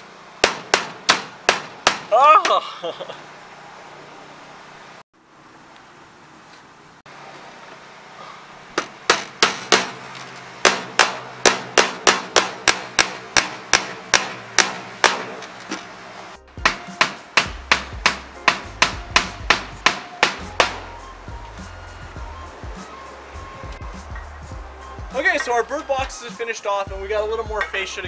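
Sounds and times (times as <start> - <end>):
hammer striking nails into metal: 0.4 - 2.6, 8.8 - 10.0, 10.6 - 15.5, 16.6 - 20.8.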